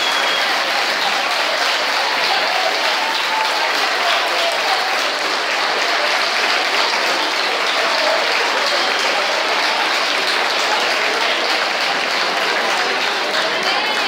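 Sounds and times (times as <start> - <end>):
crowd applauding: 0.0 - 14.0.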